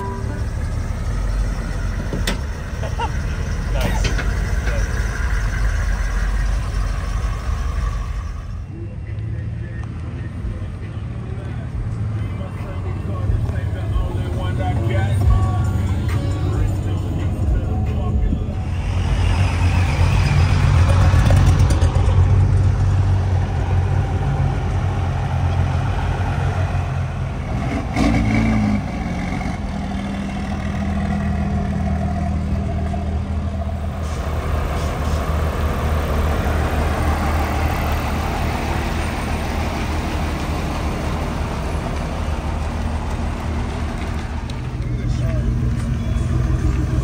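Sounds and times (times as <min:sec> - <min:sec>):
pickup truck engines rolling past: 0:00.0 - 0:47.0.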